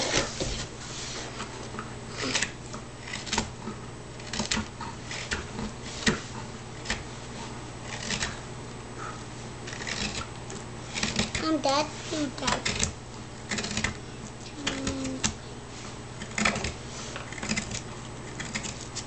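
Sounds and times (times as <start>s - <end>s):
steady low hum: 0.0s - 19.0s
carving tool scraping wood: 2.2s - 8.4s, 9.0s - 14.0s, 15.8s - 19.0s.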